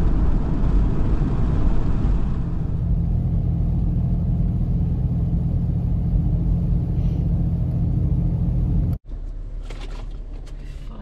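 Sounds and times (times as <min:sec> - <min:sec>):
low hum: 0:00.0 - 0:10.9
car engine drone: 0:00.0 - 0:11.0
rustles and clicks: 0:09.2 - 0:11.0.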